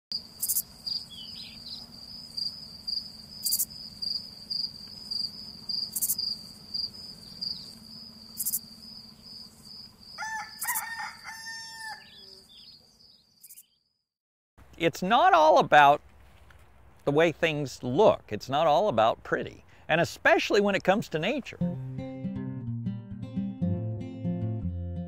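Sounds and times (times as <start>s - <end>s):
insects chirping: 0.1s - 14.0s
sharp ticks: 5.9s - 6.3s, 8.3s - 8.7s
rooster crowing: 10.0s - 12.6s.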